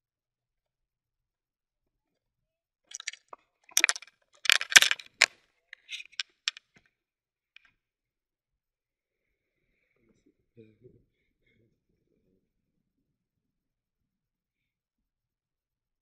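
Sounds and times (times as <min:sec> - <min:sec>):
microphone handling clicks and scrapes: 0:02.9 - 0:06.6.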